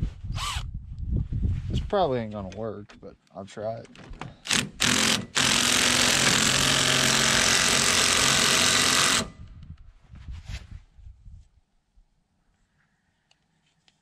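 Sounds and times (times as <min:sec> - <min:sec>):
impact wrench hammering: 0:04.5 - 0:09.4.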